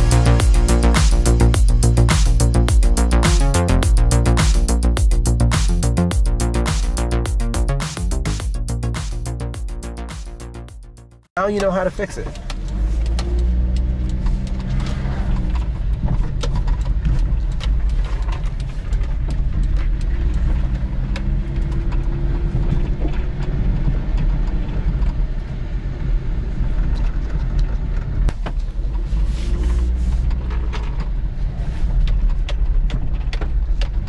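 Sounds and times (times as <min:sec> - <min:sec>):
engine and road noise in cab: 0:11.3 - 0:34.0.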